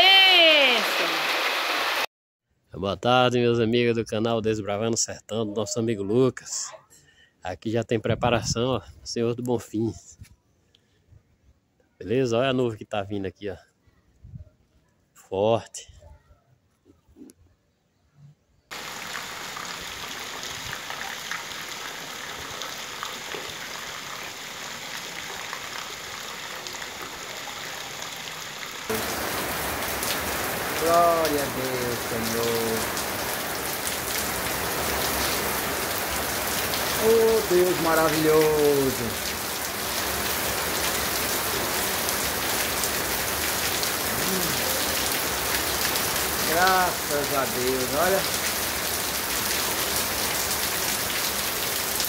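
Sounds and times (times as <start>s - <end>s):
rain falling on wet street: 0.1s - 2.1s, 18.7s - 52.0s.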